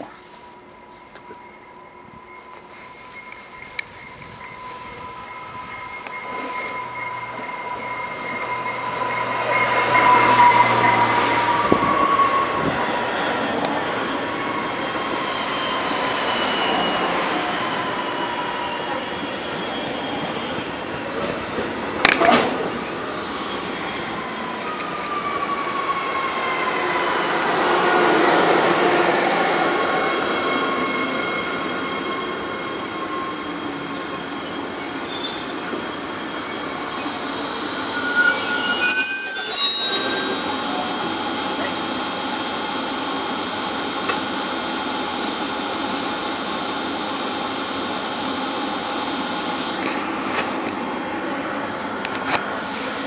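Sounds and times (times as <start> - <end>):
train wheels squealing on rails: 0.0 - 41.9
train rolling rumble: 0.0 - 53.0.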